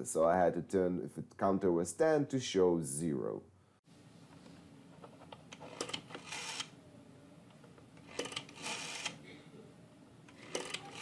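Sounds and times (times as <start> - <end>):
rotary dial clicking and whirring: 5.3 - 6.7, 8.0 - 9.2, 10.3 - 11.0.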